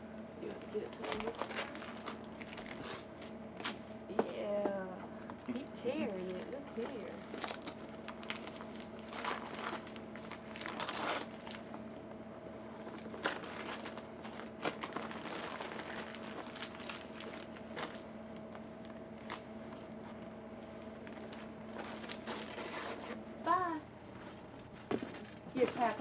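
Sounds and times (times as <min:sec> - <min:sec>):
faint steady hum: 0:00.0 - 0:26.0
wrapping paper crinkling and tearing: 0:00.6 - 0:03.0, 0:06.3 - 0:11.7, 0:12.8 - 0:18.0, 0:21.1 - 0:23.2.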